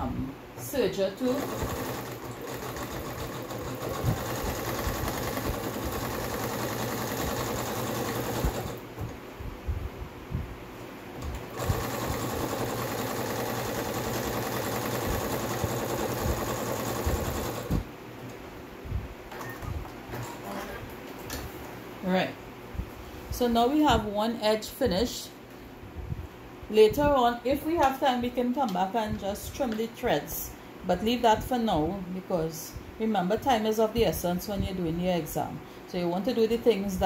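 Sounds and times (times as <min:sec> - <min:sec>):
sewing machine running: 0:01.2 - 0:08.8, 0:11.3 - 0:17.8.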